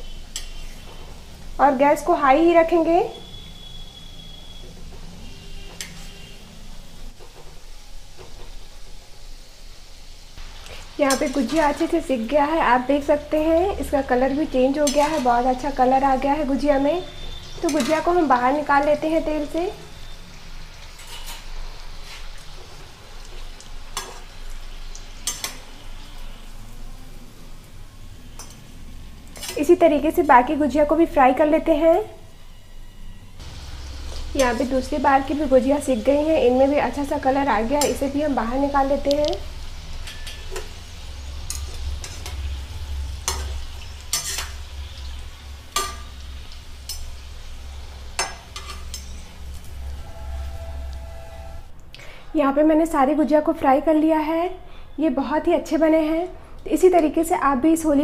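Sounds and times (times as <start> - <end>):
frying in hot oil sizzle: 0.0 - 52.2
metal spoon clinking on pan: 11.1 - 11.7, 14.8 - 15.4, 17.7 - 18.1, 25.2 - 25.7, 40.0 - 40.8, 41.4 - 42.4, 43.2 - 44.7, 45.7 - 46.2, 46.8 - 47.2, 48.2 - 49.3
strainer clinking against pan: 45.8 - 46.2.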